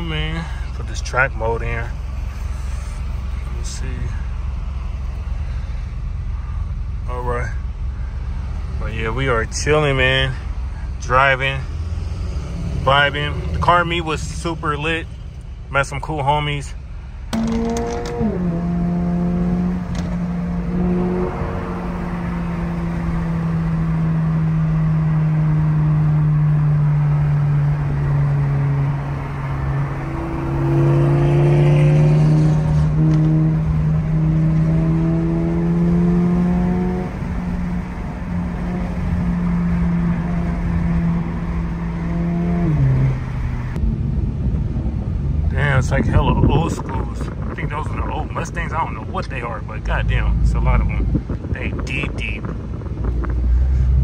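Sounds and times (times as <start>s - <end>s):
car engine droning: 0.0s - 54.0s
tyre and wind noise: 30.0s - 54.0s.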